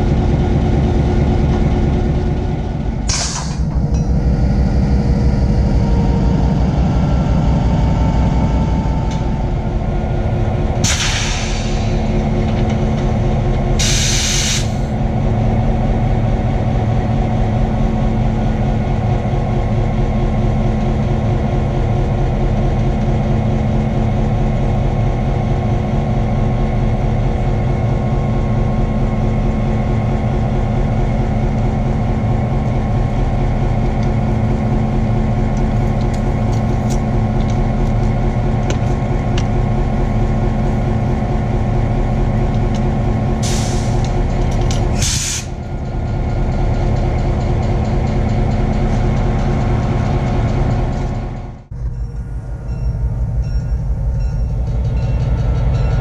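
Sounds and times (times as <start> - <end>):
diesel locomotive idling: 0.0 - 56.0
air hiss: 13.8 - 14.8.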